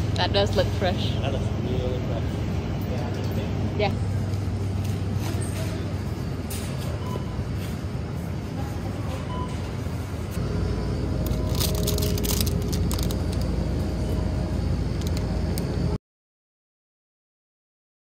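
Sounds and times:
refrigerated cases humming: 0:00.0 - 0:16.0
plastic food package crinkling: 0:11.3 - 0:13.5.

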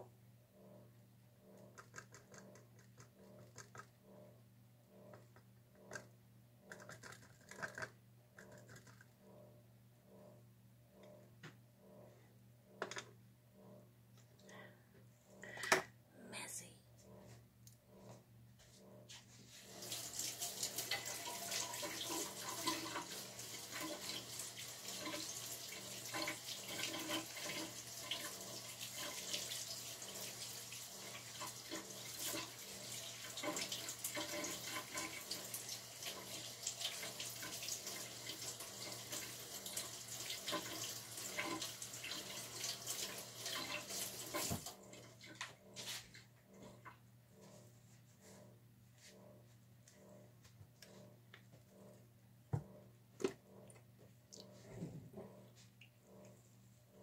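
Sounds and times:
low steady hum: 0:00.0 - 0:19.6, 0:44.7 - 0:57.0
water running from tap: 0:19.6 - 0:44.7.

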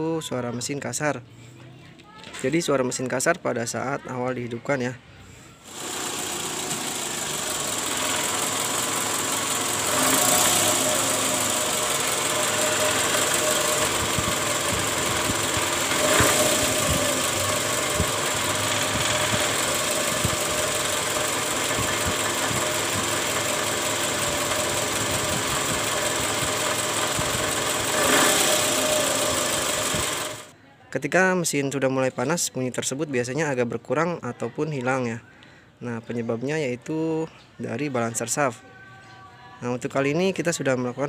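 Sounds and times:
car engine idling with rough rattle: 0:05.7 - 0:30.5.

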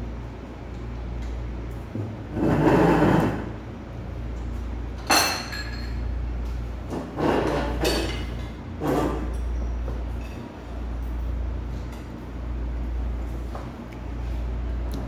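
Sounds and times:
steady low hum: 0:00.0 - 0:15.0
tableware clattering against dishes: 0:05.0 - 0:06.1, 0:06.9 - 0:10.5.

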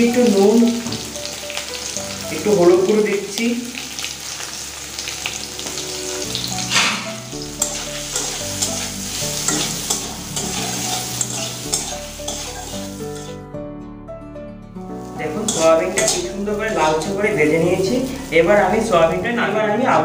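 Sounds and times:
food sizzling in hot oil: 0:00.0 - 0:13.4, 0:14.8 - 0:20.0
metal spatula scraping pan: 0:05.7 - 0:13.4, 0:15.4 - 0:18.3.

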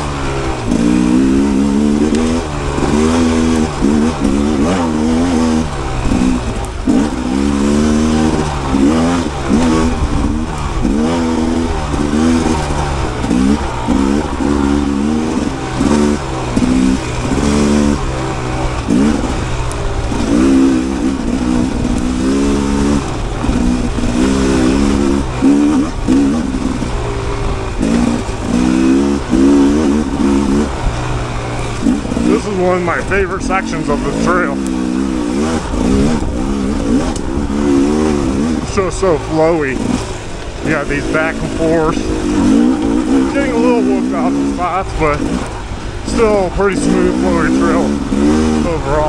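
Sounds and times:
two-stroke engine revving: 0:00.0 - 0:49.0.

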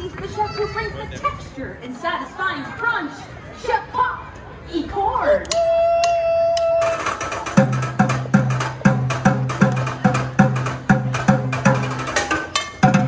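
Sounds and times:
percussion on pots and pans: 0:05.5 - 0:13.0.

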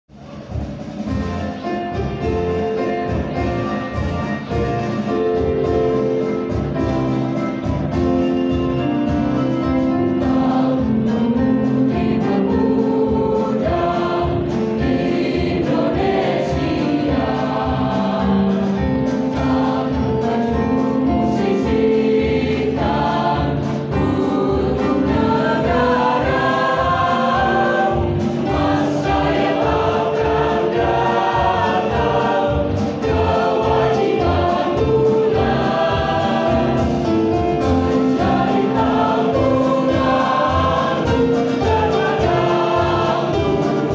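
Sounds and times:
children's choir singing: 0:01.0 - 0:43.9.

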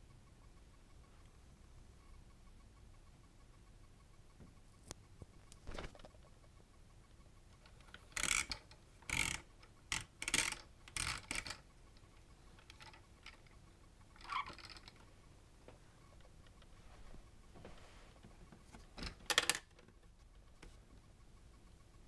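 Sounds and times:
plastic toy clicks and scrapes: 0:07.6 - 0:15.0, 0:18.7 - 0:19.8.

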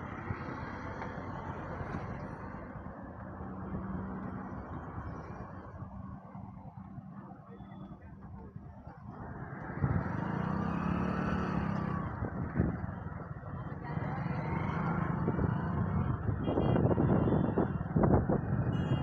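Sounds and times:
passing traffic: 0:00.0 - 0:19.0
road noise: 0:00.0 - 0:19.0
vehicle engine: 0:00.0 - 0:19.0.

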